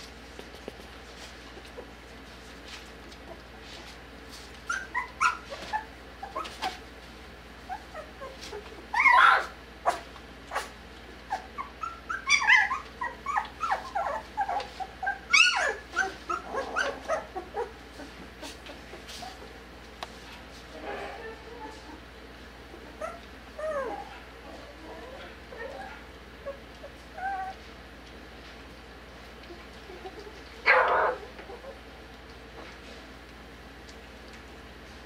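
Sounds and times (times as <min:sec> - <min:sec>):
puppies yipping and whimpering: 0:04.4 - 0:07.0, 0:07.6 - 0:19.5, 0:21.1 - 0:27.9, 0:29.4 - 0:32.1.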